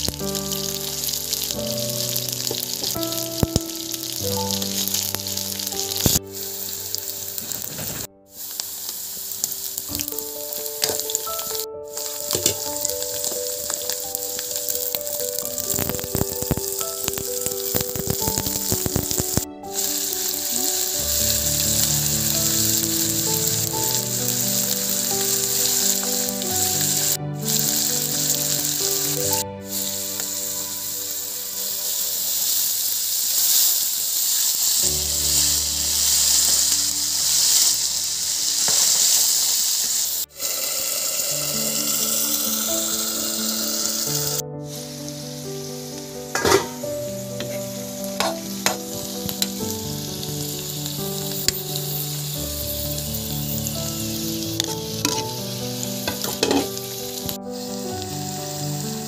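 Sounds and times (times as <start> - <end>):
potatoes sizzling in oil: 0.0 - 59.0.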